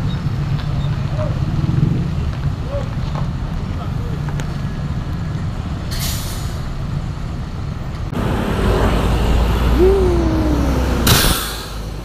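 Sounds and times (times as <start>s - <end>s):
bus engines running: 0.0s - 12.0s
air hiss: 11.0s - 11.9s.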